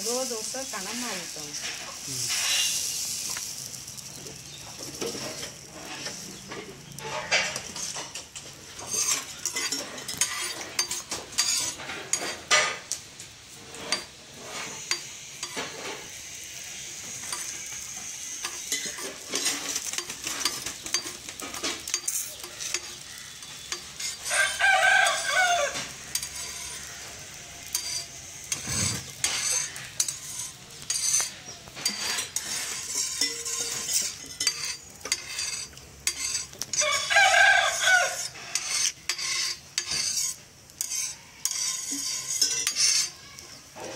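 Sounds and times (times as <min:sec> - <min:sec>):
batter sizzling on griddle: 0:00.0 - 0:43.9
rooster crowing: 0:24.2 - 0:27.6, 0:36.8 - 0:38.7.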